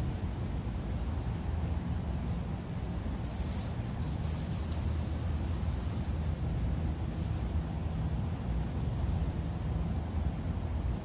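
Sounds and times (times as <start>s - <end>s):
fishing reel cranking: 3.2s - 6.2s.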